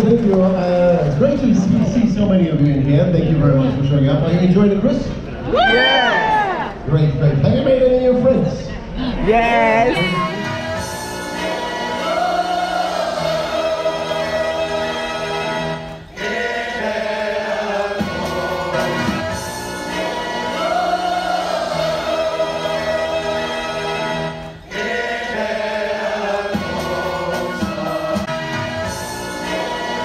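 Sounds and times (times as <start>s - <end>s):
choir singing with accompaniment: 9.9s - 30.0s.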